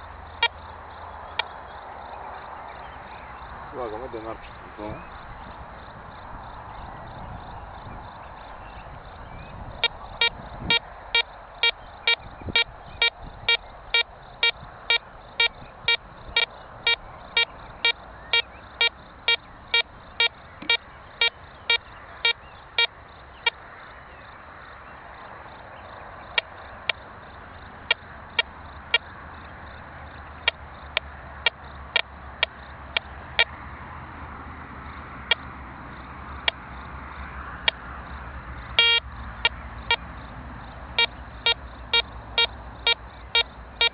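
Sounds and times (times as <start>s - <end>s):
metal detector beeps: 9.8s - 22.9s, 38.8s - 39.1s.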